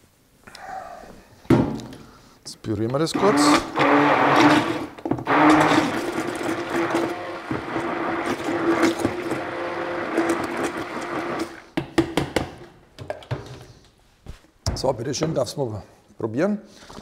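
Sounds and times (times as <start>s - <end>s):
electric blender running: 3.2s - 11.6s.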